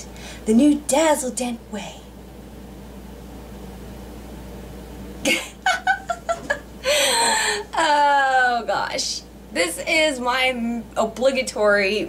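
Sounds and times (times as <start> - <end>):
faint room hum: 0.0 - 12.0
woman giggling: 5.2 - 7.8.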